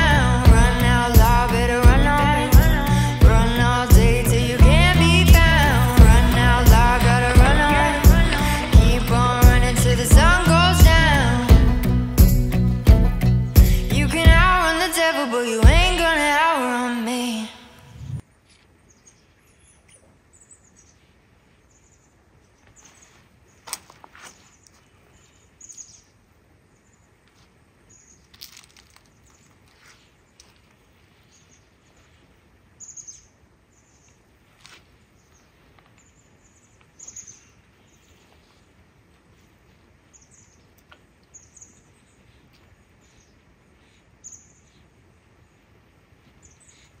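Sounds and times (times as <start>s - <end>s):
background music: 0.0s - 16.4s
birds chirping: 32.7s - 34.3s, 34.9s - 38.7s, 40.0s - 47.0s.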